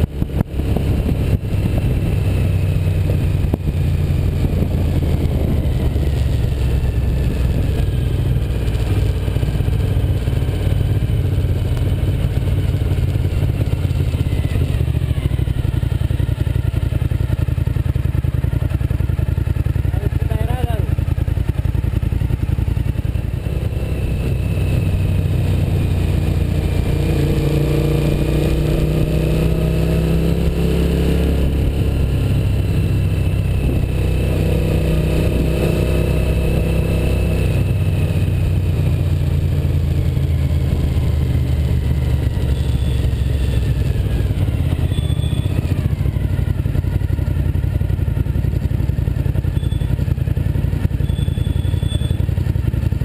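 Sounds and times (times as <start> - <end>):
motorcycle engine accelerating: 0.0 - 53.0.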